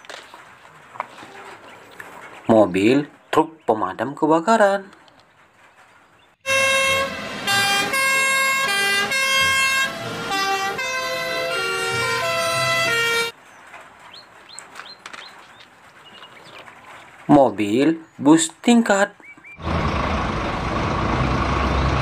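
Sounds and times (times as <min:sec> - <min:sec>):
two-tone fire engine sirens: 0:06.4 - 0:13.4
faint clicks and rustles: 0:13.4 - 0:17.3.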